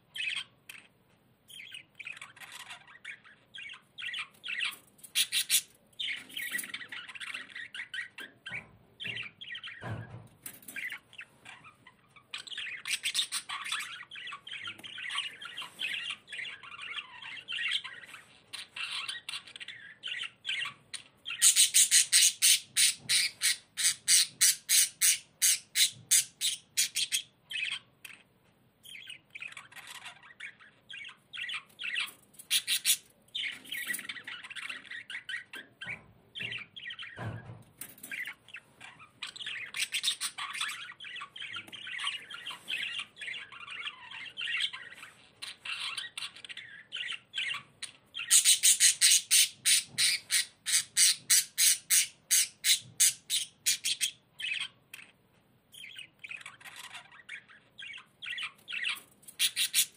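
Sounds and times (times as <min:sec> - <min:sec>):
budgerigars chirping: 0:00.1 - 0:00.9, 0:01.5 - 0:59.9
loud sharp bird calls: 0:01.5 - 0:10.2, 0:12.3 - 0:27.9, 0:39.2 - 0:55.1, 0:55.8 - 0:59.9.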